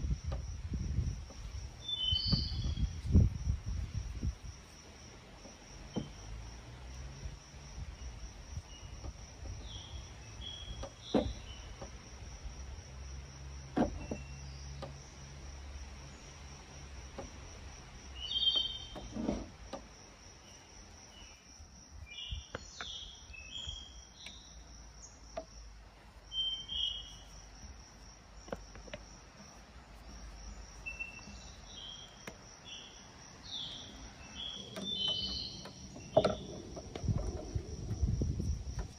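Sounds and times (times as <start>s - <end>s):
bird chirps: 1.8s - 3.0s, 9.6s - 11.8s, 18.2s - 19.0s, 22.1s - 25.2s, 26.3s - 27.3s, 30.8s - 36.5s
soft knocks: 13.7s - 14.2s.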